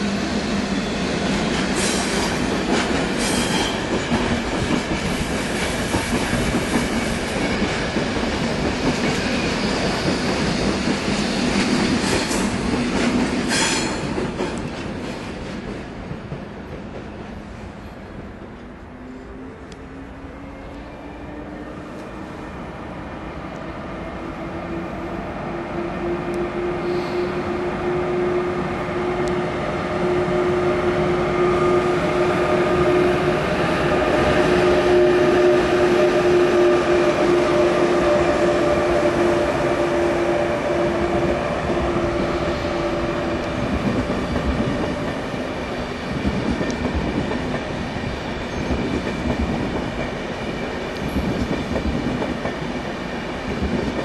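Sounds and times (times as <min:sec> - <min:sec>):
electric locomotive hum: 0:15.9 - 0:54.0.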